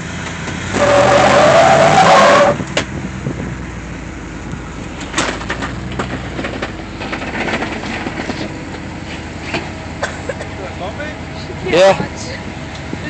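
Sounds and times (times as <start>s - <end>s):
engine running under load: 0.0s - 13.0s
harsh squealing burst: 0.7s - 2.6s
tires and body knocking on rock: 4.5s - 9.8s.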